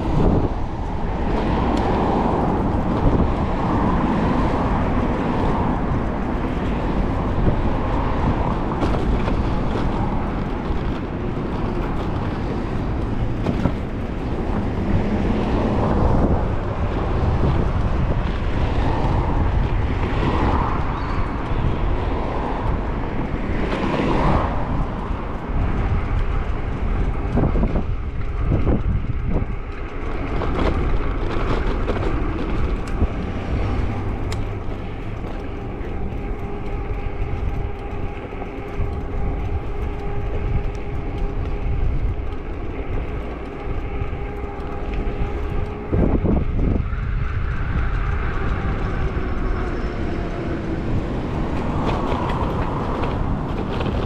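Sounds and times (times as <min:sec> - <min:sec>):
road noise: 0:00.0 - 0:54.0
wind rushing over microphone: 0:00.0 - 0:54.0
steady droning tone: 0:31.8 - 0:54.0.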